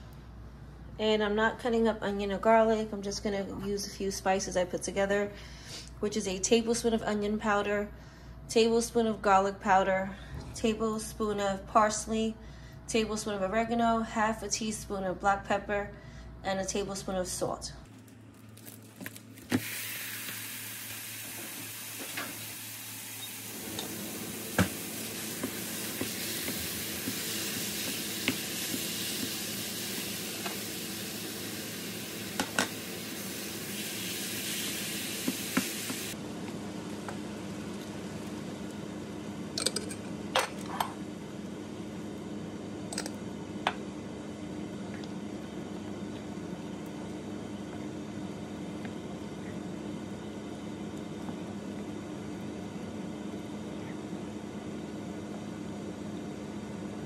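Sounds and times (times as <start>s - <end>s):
meat sizzling in a frying pan: 19.6s - 36.2s.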